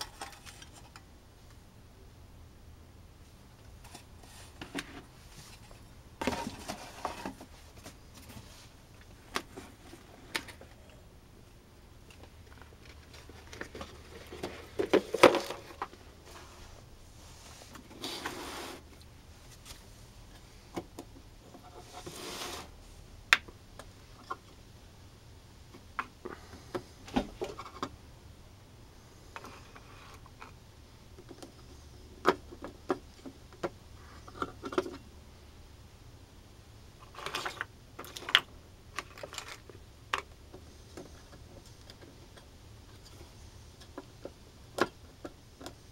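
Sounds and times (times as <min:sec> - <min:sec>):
short scrapes: 0:16.3 - 0:18.8, 0:21.8 - 0:22.8
resin pucks clicking and knocking: 0:37.1 - 0:45.9.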